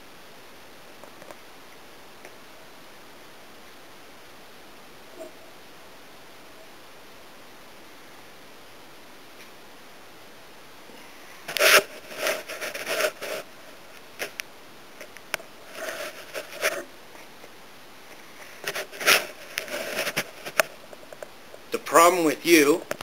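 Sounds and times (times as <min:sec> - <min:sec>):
steady hiss: 0:00.0 - 0:23.0
rustling close to microphone: 0:10.9 - 0:14.4, 0:15.0 - 0:21.8.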